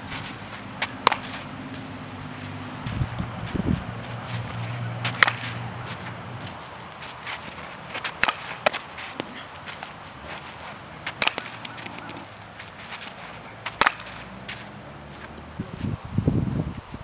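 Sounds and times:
bat striking balls: 0.0s - 10.0s, 10.6s - 15.5s.

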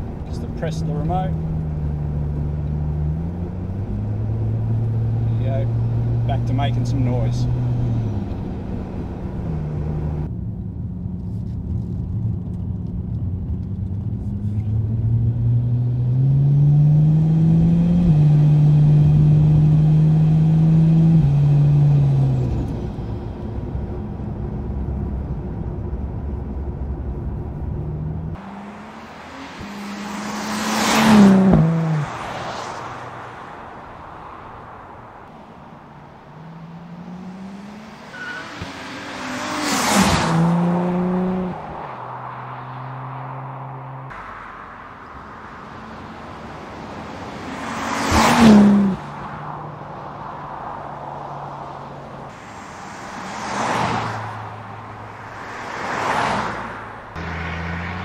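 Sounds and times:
car engine accelerating: 0.0s - 58.0s
car passing by: 28.4s - 58.0s.

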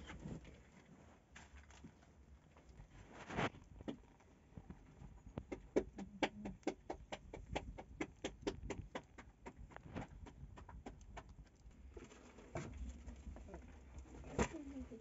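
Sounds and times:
wood embers crackling: 7.9s - 15.0s.

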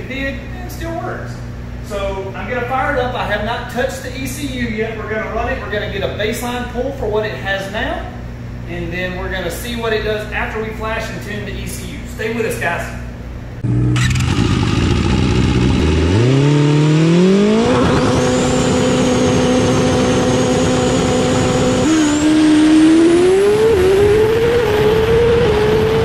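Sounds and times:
racing engine revving: 13.6s - 26.0s.

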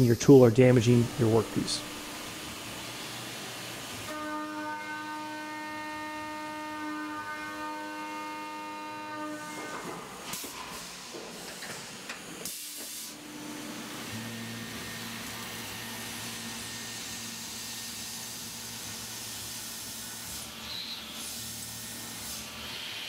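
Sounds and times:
low spindle hum: 0.0s - 2.9s.

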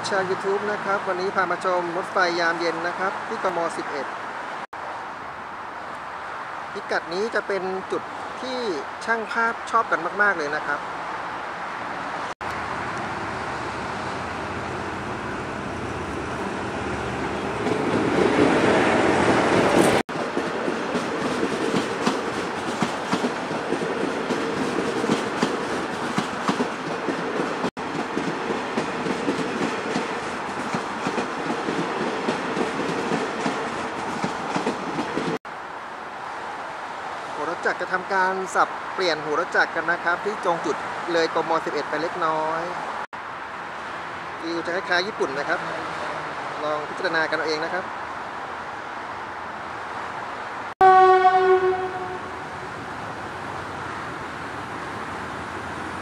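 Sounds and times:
train rumble: 12.5s - 35.4s.

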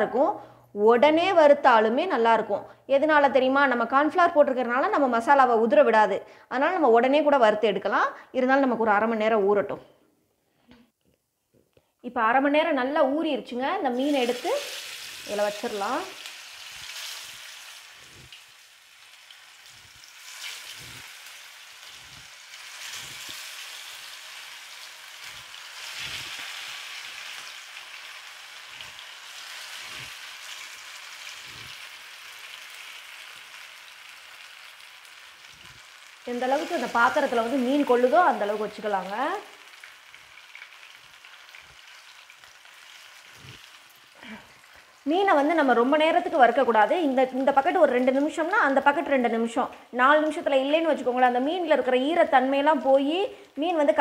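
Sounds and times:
fish frying in hot oil: 14.0s - 45.1s.

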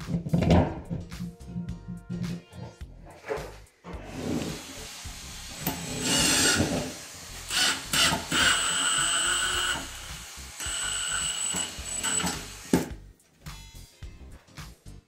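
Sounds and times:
cordless driver driving a screw: 7.5s - 9.9s, 10.6s - 12.9s.

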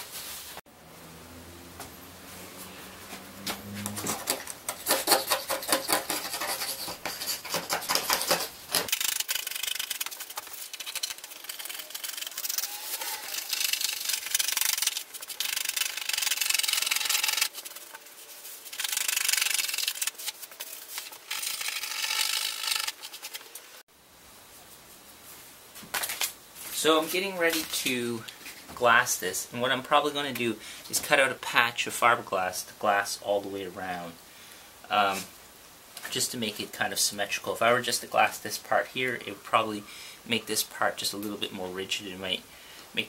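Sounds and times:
razor blade scraping epoxy: 4.1s - 23.6s.

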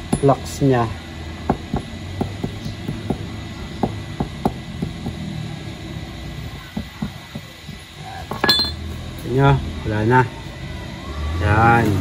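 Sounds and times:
low steady hum: 0.0s - 11.0s
small hammer tapping metal: 8.3s - 8.8s.

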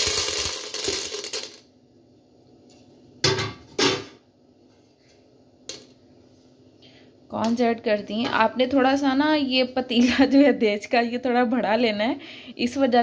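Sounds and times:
popcorn kernels rattling in metal pan: 0.0s - 1.7s.

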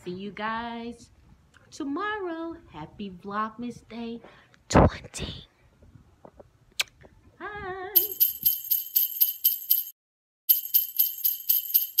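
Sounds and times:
jingle music: 8.0s - 12.0s
sleigh bells shaken: 8.0s - 12.0s.

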